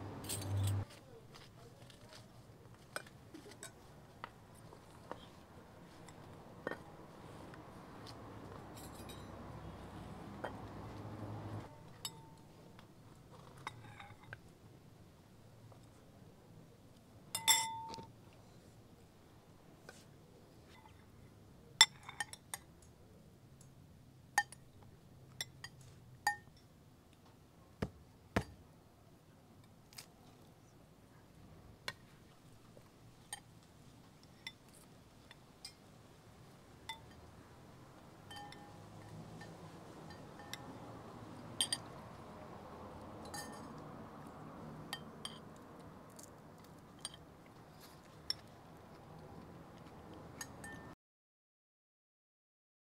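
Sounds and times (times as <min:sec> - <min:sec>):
spoons clinking against ceramic bowls: 0:00.2 - 0:00.8, 0:08.7 - 0:09.8, 0:17.4 - 0:18.1, 0:21.8 - 0:22.6, 0:36.8 - 0:37.3, 0:38.2 - 0:40.9, 0:41.6 - 0:42.0, 0:43.2 - 0:43.8, 0:44.9 - 0:45.5, 0:50.4 - 0:50.9.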